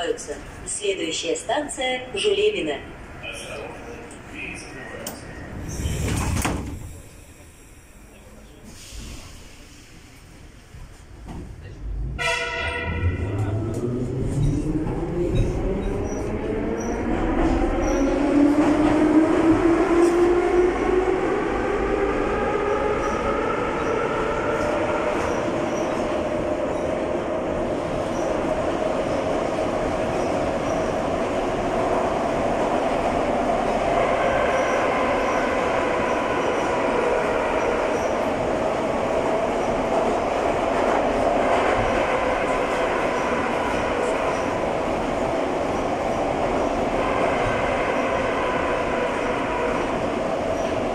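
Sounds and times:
metro train motors whining: 0:12.8 - 0:50.9.

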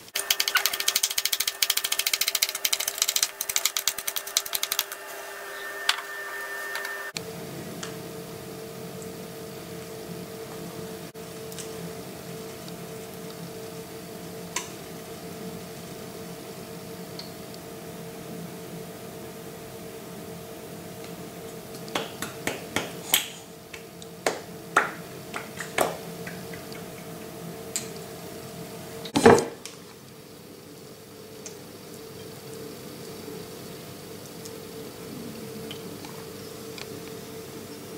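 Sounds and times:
steady hum: 0:00.0 - 0:29.2.

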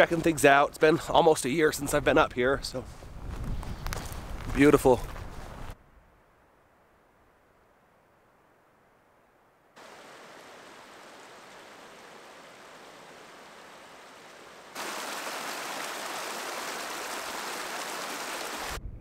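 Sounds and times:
creek water rushing over rock: 0:09.8 - 0:18.8.

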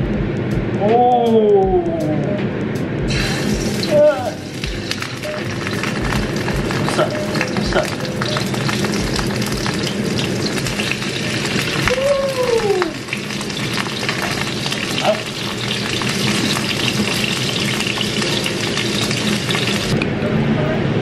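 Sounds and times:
fish sizzling in a pan: 0:03.1 - 0:20.0.

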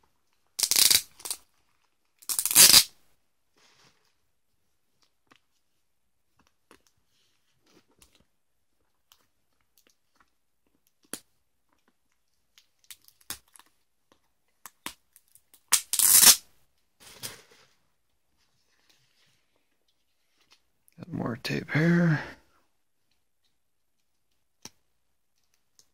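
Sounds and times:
packaging tearing: 0:00.6 - 0:01.4, 0:02.2 - 0:02.9, 0:15.6 - 0:16.4.

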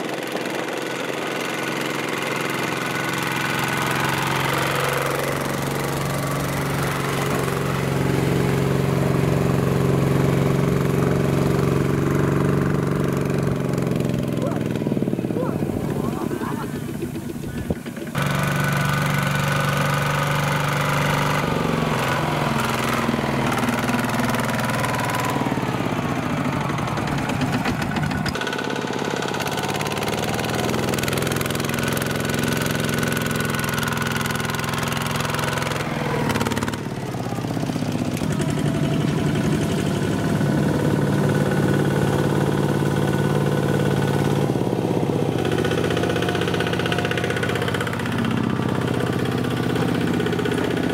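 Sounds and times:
diesel tractor engine knocking: 0:00.0 - 0:50.9.

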